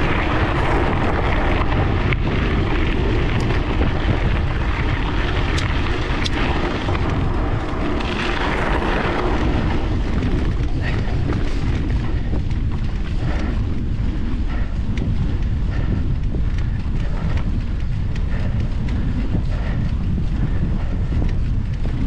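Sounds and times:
bicycle tyres rolling on gravel: 0:00.0 - 0:22.0
wind buffeting microphone: 0:00.0 - 0:22.0
sharp ticks: 0:10.1 - 0:22.0.

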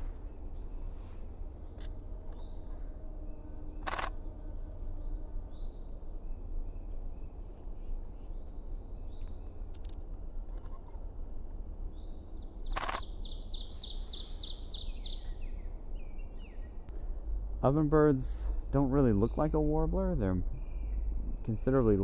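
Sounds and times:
low wind rumble: 0:00.0 - 0:22.0
faint bird calls: 0:10.4 - 0:11.0.

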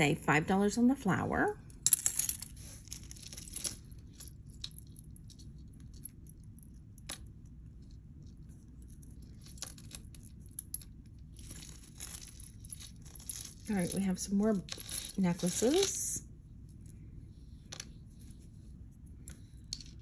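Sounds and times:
jewelry clinking: 0:01.7 - 0:16.2.

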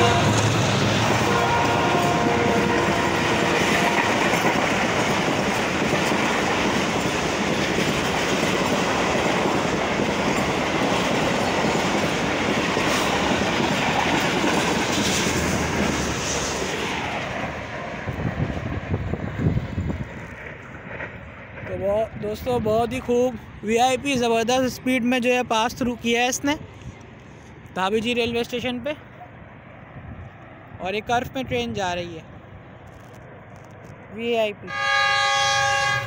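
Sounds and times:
train horn: 0:00.0 - 0:00.6, 0:01.2 - 0:04.1, 0:34.7 - 0:36.0
train wheels rushing on rails: 0:00.0 - 0:29.8.

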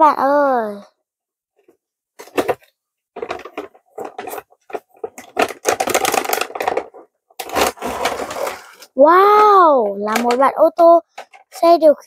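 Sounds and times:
plastic packaging crinkling: 0:03.2 - 0:09.0
cardboard box being opened: 0:07.4 - 0:08.9.

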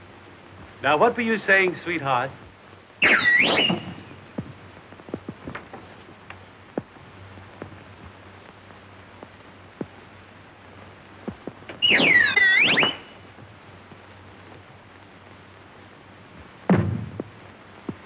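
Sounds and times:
film soundtrack hum: 0:00.0 - 0:18.0
shrill whistle-like swooping tone: 0:03.0 - 0:04.0, 0:11.8 - 0:13.1
faint clicks: 0:05.0 - 0:07.0.

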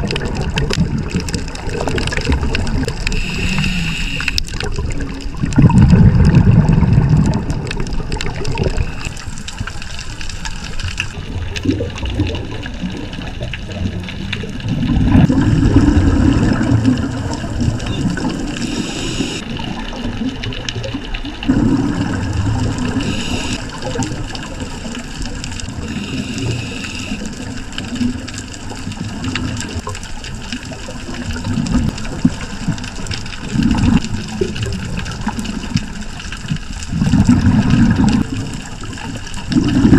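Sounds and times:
diver's exhaled bubbles: 0:00.0 - 0:09.5, 0:11.0 - 0:29.9, 0:30.8 - 0:39.9
underwater rush: 0:00.0 - 0:39.9
short hisses: 0:03.2 - 0:04.4.

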